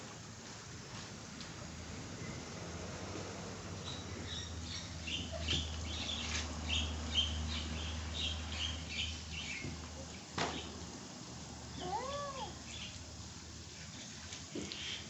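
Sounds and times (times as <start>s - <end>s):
bird chirping: 3.8s - 9.7s.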